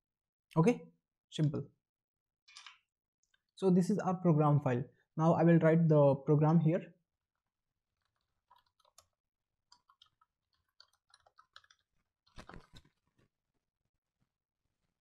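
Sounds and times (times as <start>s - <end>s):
faint keyboard typing: 8.0s - 13.2s.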